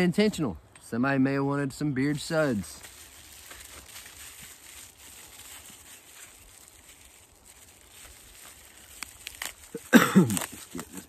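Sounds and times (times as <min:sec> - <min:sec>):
package wrapping crinkling: 0:02.5 - 0:11.0.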